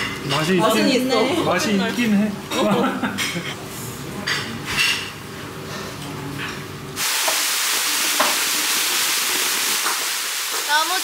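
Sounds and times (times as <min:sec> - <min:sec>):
table and dish sounds: 0:04.2 - 0:07.4, 0:08.1 - 0:08.5
running water hissing: 0:07.0 - 0:11.0.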